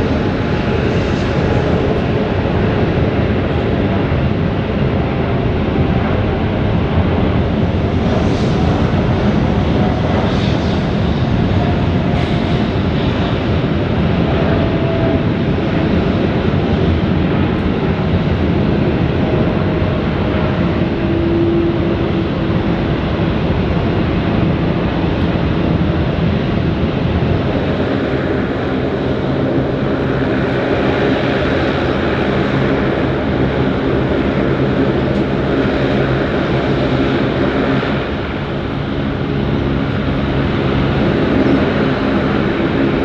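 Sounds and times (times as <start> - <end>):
airliner engines roaring: 0.0 - 43.0.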